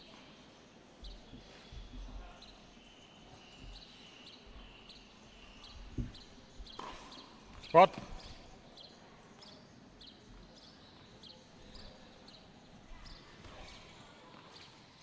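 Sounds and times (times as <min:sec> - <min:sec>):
faint high chirps: 0:00.0 - 0:14.8
tennis ball bouncing on court: 0:06.0 - 0:08.3.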